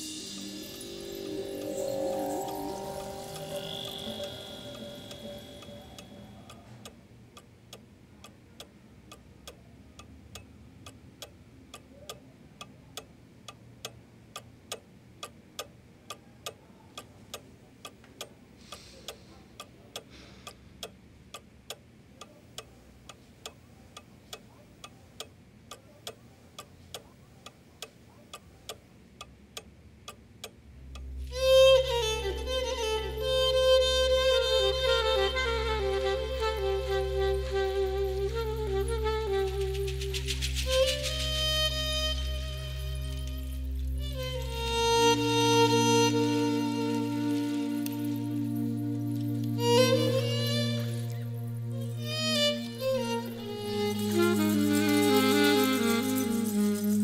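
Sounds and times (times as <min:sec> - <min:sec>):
bowed-string music: 0:00.0 - 0:06.6, 0:31.0 - 0:57.0
music: 0:00.0 - 0:06.6, 0:30.9 - 0:57.0
faint hum: 0:00.0 - 0:09.0
clock ticking: 0:00.0 - 0:34.5.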